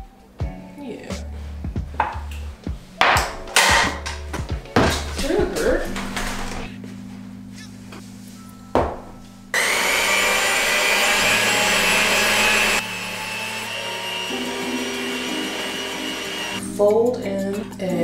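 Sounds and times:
electric mixer beating: 9.6 - 16.6.

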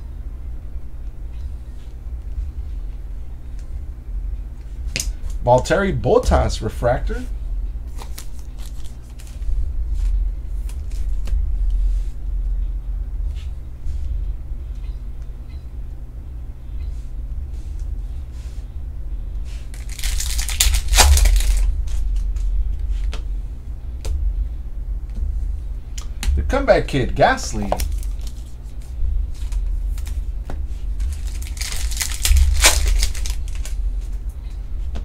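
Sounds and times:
steady low rumble: 0.0 - 35.0
foil pack crinkling: 7.9 - 9.4, 19.7 - 22.2, 27.5 - 30.2, 30.9 - 33.8
cards and plastic sleeves handled: 7.9 - 11.4, 19.7 - 22.5, 27.5 - 33.8.

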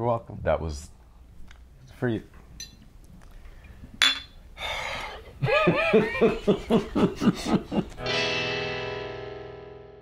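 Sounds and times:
glass bottles clinking: 2.6 - 2.8, 4.0 - 4.4
bursts of laughter: 5.4 - 8.0.

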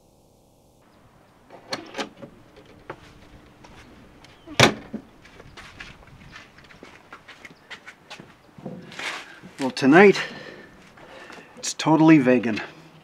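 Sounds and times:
trailer door latch clicks: 1.6 - 2.7
door banging shut: 4.5 - 5.0.

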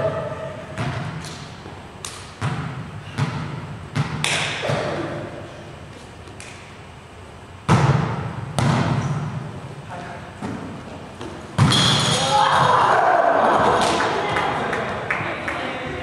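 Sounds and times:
volleyball thuds in gym: 2.1 - 5.3, 7.6 - 9.5, 10.4 - 12.8.

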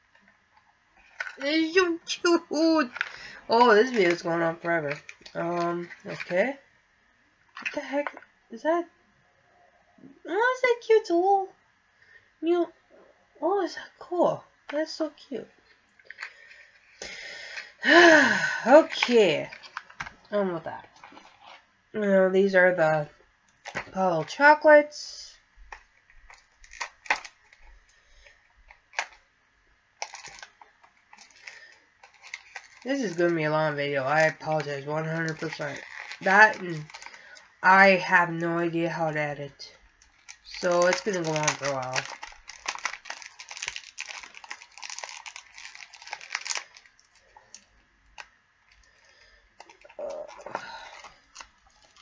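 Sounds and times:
packaging rustle: 1.0 - 1.8, 2.8 - 6.5, 15.7 - 17.8, 18.8 - 20.2, 20.8 - 21.7, 25.7 - 29.2, 30.0 - 37.6, 39.9 - 52.0
candy wrapper crinkling: 1.0 - 6.6, 15.7 - 21.6, 25.7 - 29.2, 30.0 - 37.8, 39.8 - 52.0.

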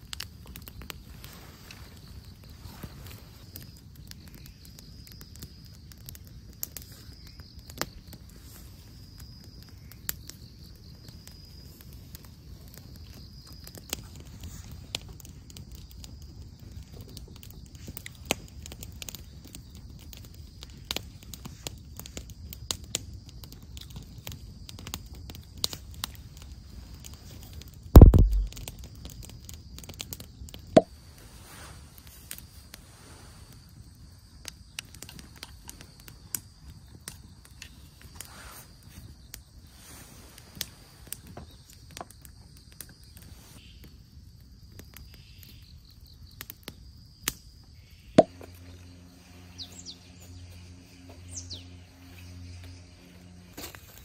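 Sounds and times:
light clicks and crackles: 0.0 - 43.6
low outdoor rumble: 27.9 - 28.9, 48.2 - 54.0
heavy thud: 28.0 - 28.5.

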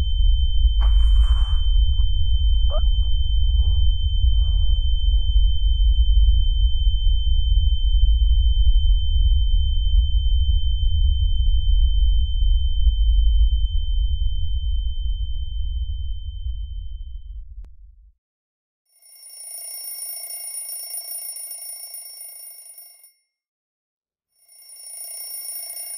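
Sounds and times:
deep rumbling drone: 0.0 - 18.1
high-pitched ringing tone: 0.8 - 15.5, 24.4 - 25.9.

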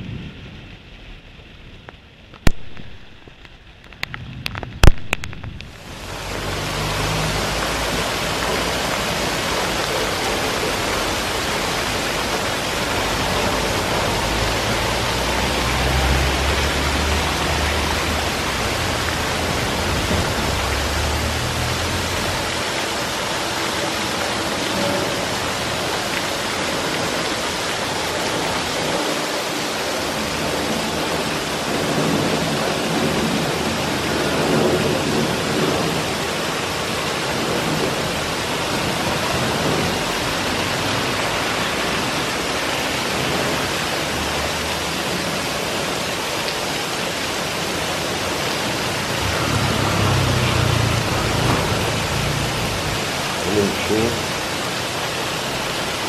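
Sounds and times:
heavy rain on roofs and pavement: 0.0 - 56.0
motorcycle riding by: 49.0 - 53.3.

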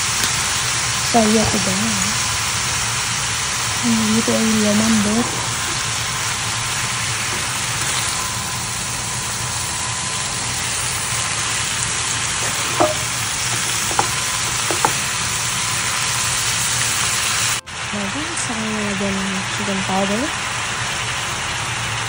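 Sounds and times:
vegetables sizzling in a pan: 0.0 - 22.0
spatula knocking against a pan: 12.4 - 15.0.

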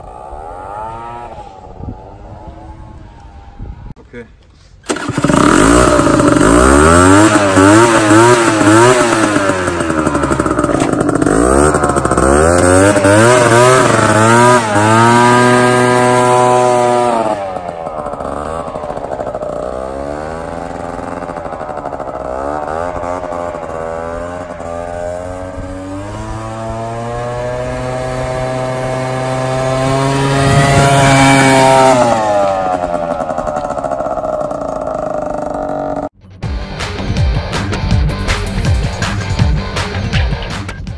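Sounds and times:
two-stroke scooter engine revving: 0.0 - 3.5, 4.8 - 36.2.

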